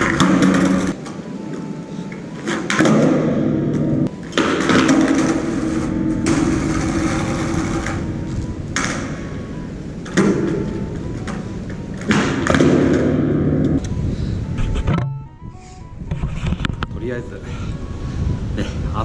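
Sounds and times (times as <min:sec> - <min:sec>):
skateboard wheels rolling on concrete: 0:00.0 - 0:14.0.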